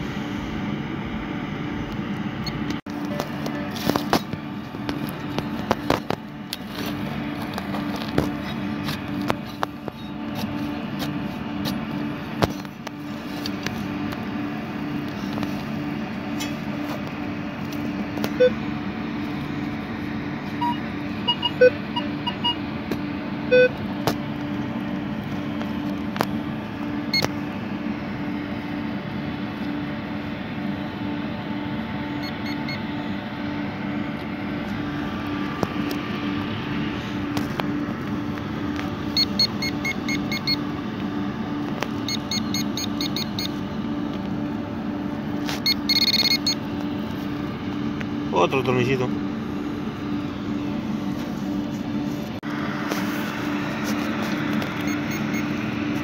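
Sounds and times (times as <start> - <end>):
metal detector beeps: 18.3 - 18.6, 20.6 - 22.6, 23.5 - 23.8, 32.2 - 32.9, 39.1 - 40.6, 42.0 - 43.6, 45.6 - 46.6, 54.8 - 55.6.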